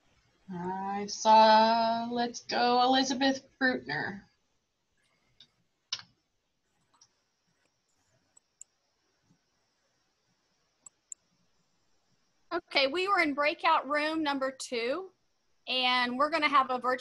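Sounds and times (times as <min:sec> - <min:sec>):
faint clicks and ticks: 0:04.9 - 0:10.0, 0:10.7 - 0:11.9.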